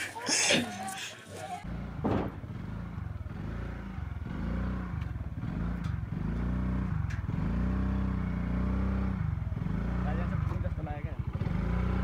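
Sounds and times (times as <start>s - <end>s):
scooter engine revving: 2.4s - 12.0s.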